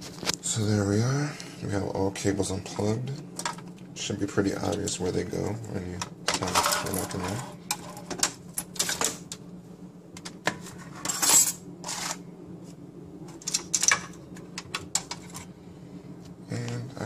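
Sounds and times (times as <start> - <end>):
metal tray scraping: 6.4 - 8.2, 10.5 - 12.2.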